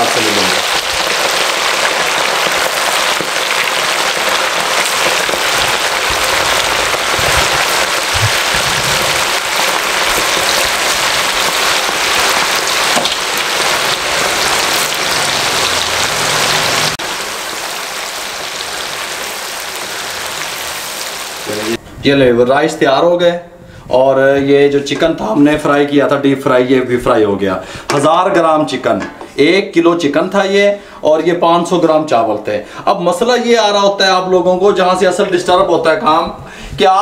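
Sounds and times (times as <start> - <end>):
chicken deep-frying in oil: 0.0 - 21.8.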